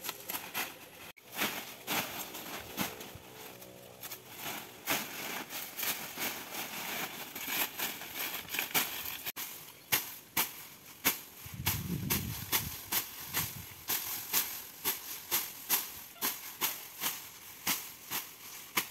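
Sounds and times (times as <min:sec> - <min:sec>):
leaves rustling: 0:00.0 - 0:18.9
machete slashing dry leaves: 0:00.0 - 0:18.9.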